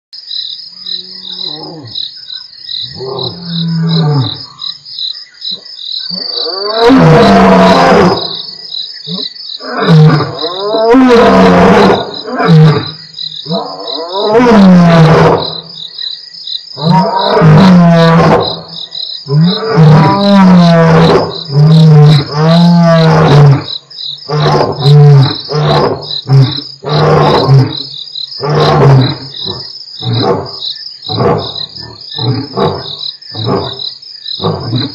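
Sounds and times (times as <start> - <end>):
crickets trilling: 0.2 - 34.9
lions roaring: 6.2 - 8.4, 9.1 - 15.6, 16.8 - 18.6, 19.3 - 23.7, 24.3 - 30.5, 31.1 - 33.8, 34.4 - 34.9
lion grunts: 28.4 - 33.8, 34.4 - 34.9.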